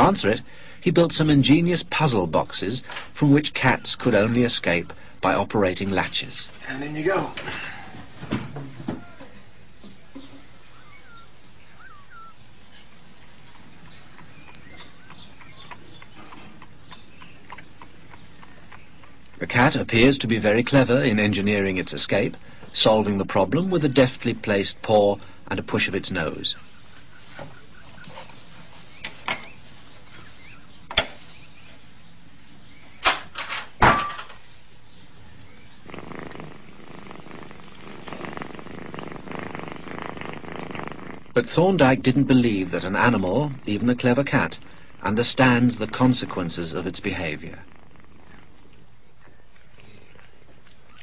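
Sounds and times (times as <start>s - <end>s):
cat purring: 10.2s - 28.8s, 35.0s - 51.0s.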